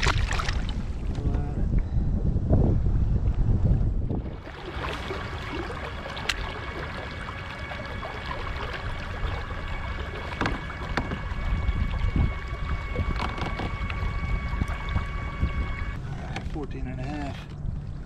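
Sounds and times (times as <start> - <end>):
wind on microphone: 0.0 - 18.0
water lapping: 4.1 - 18.0
light knocks against hull: 9.2 - 16.6.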